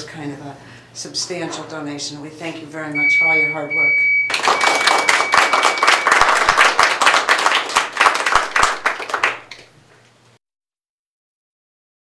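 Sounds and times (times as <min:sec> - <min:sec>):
people clapping: 0:04.3 - 0:09.8.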